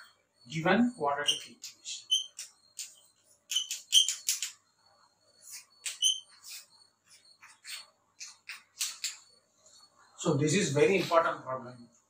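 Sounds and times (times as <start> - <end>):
chalk squeaks: 1.2 - 10.2
chalk scratching on blackboard: 5.4 - 9.1.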